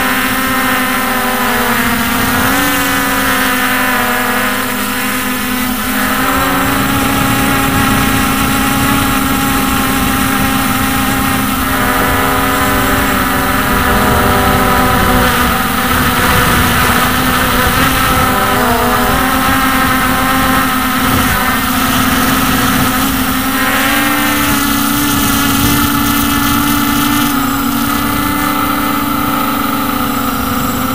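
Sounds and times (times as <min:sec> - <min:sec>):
quadcopter motors whining: 0:00.0 - 0:30.9.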